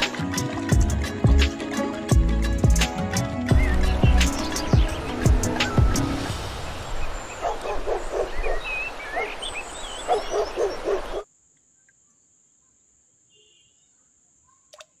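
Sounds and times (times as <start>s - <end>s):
birds chirping: 3.5s - 11.2s
dog barking: 7.4s - 8.7s, 10.1s - 11.2s.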